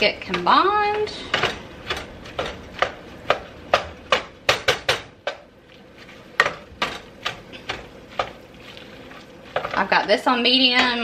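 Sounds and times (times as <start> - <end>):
utensil knocking on metal skillet: 0.2 - 5.5.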